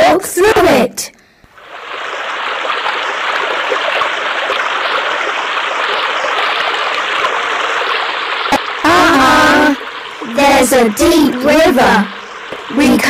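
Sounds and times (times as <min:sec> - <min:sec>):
river water rushing: 0:01.6 - 0:10.7.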